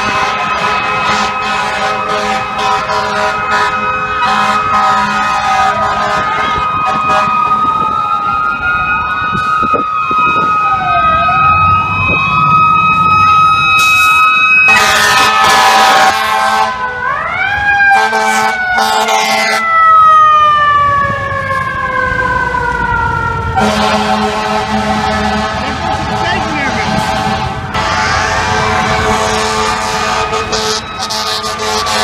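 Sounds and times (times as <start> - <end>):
air horn blasts: 0.0 - 7.4, 14.7 - 16.8, 17.9 - 19.6, 23.6 - 32.0
sirens wailing: 0.0 - 32.0.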